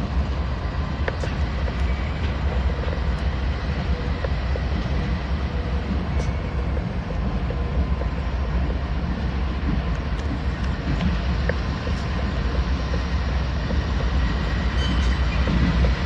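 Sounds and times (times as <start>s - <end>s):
diesel locomotive engine rumble: 0.0s - 16.0s
faint ticks: 9.7s - 14.5s.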